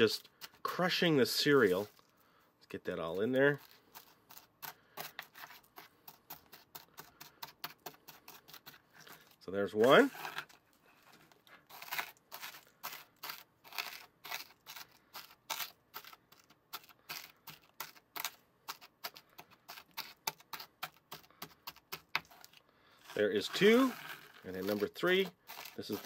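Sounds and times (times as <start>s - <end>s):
cereal crunching in plastic mold: 11.4s - 26.0s.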